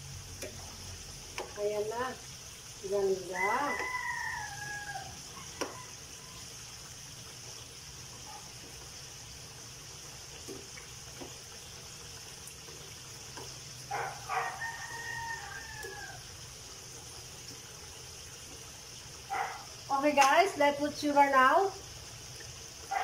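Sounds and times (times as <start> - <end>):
potato frying in oil: 0.0 - 23.0
spatula clicking against a pan: 0.4 - 0.6
rooster crowing: 3.2 - 6.4, 13.9 - 16.4.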